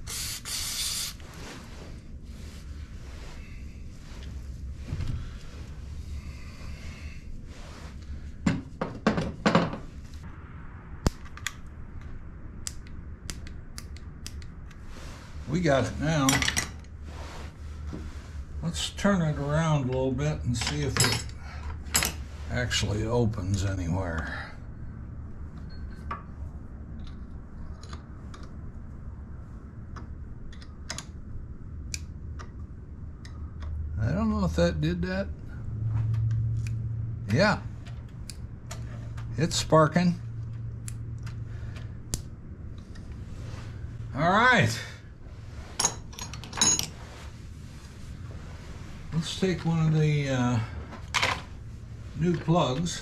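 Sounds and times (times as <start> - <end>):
aerosol spray bursts: 0.0 - 1.2
steady low hum: 0.0 - 53.0.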